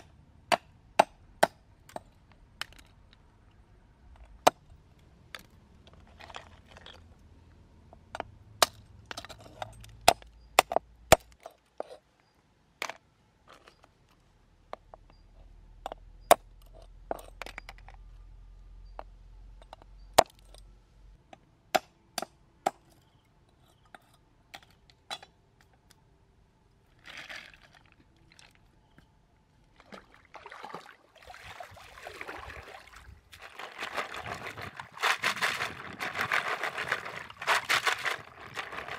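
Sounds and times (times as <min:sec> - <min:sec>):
water splashing: 0:29.8 - 0:38.9.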